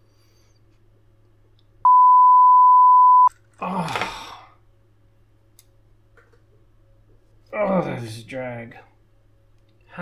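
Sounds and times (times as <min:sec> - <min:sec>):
censor bleep: 0:01.9 - 0:03.3.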